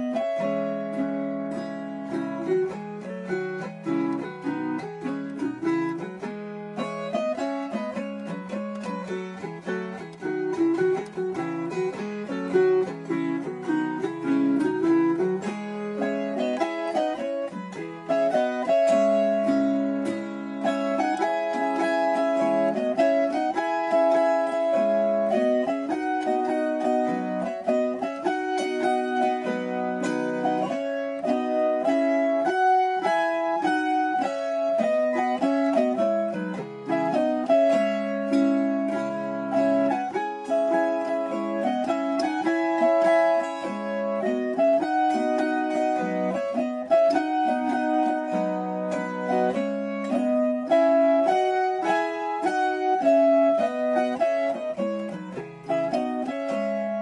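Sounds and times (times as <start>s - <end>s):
plucked string instrumental music: 0.0s - 57.0s.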